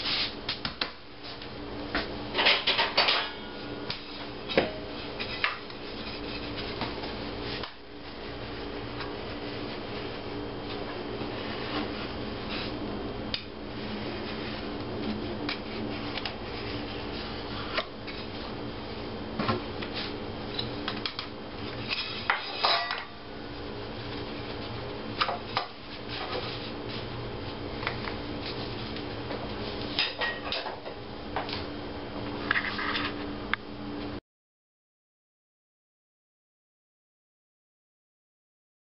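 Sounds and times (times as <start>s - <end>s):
steady low hum: 0.0s - 34.2s.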